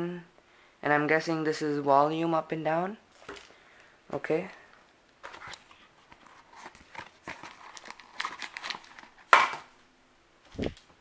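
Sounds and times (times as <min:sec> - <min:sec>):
plastic packaging crinkling: 0:05.2 - 0:09.8.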